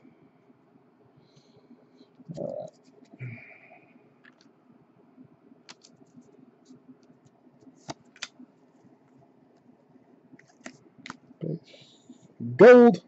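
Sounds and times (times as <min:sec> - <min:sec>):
cards sliding against each other: 0:10.4 - 0:11.2.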